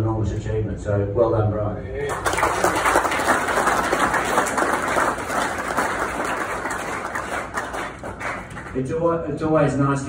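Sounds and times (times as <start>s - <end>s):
crowd applauding: 2.1s - 8.9s.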